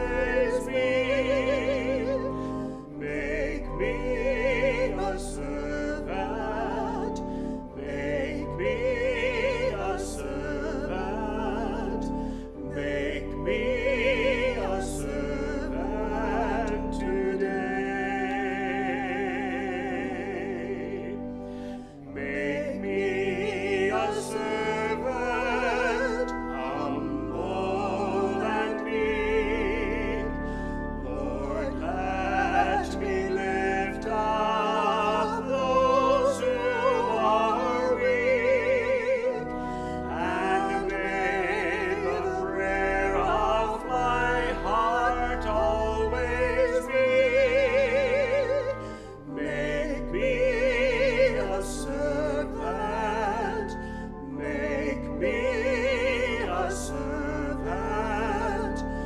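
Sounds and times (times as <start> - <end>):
person singing with vibrato: 0.0 - 59.0.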